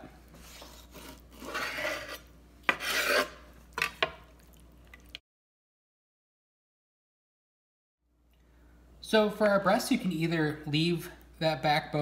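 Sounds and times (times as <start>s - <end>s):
knife sawing through bone: 0.4s - 3.4s.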